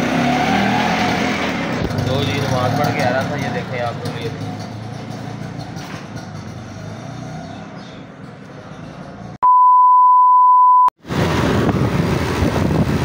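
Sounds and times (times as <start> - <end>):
test tone beep: 9.4 - 10.9.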